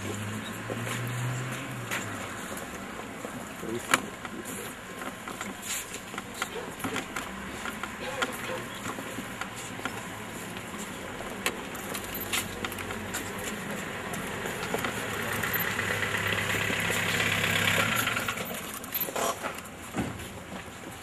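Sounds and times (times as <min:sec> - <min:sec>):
engine running: 0:06.6 - 0:19.8.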